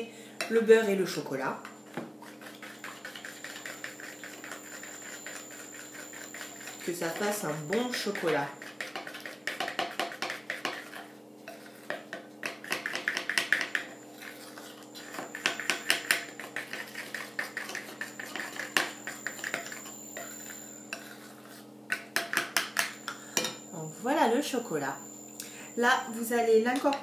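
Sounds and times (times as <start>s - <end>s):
metal utensil scraping glass bowl: 2.2s - 12.0s, 12.6s - 21.6s.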